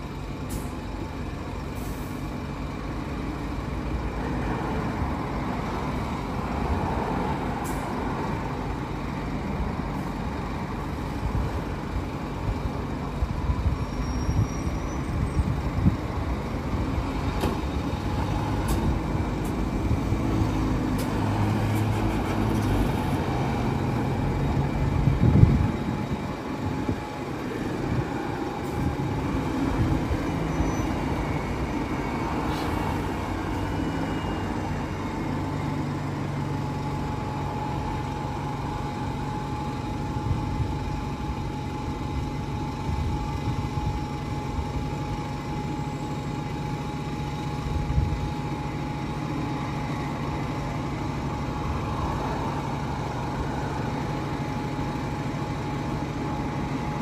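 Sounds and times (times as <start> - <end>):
bus engine idling: 0.0 - 57.0
bus jolt: 16.8 - 23.2.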